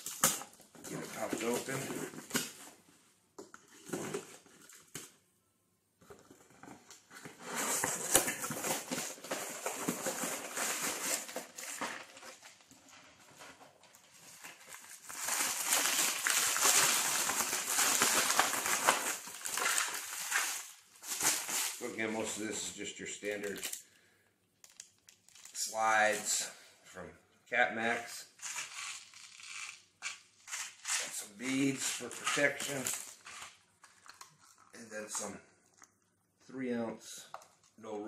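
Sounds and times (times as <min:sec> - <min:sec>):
paper and plastic rustling: 0:06.0 - 0:22.4, 0:28.4 - 0:35.9.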